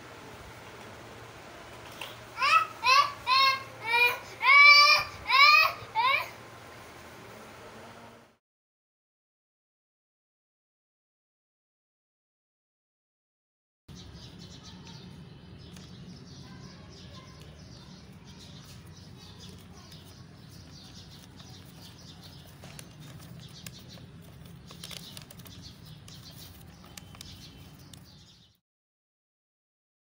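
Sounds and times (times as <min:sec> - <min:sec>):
paper rustling and crinkling: 0:18.7 - 0:28.2.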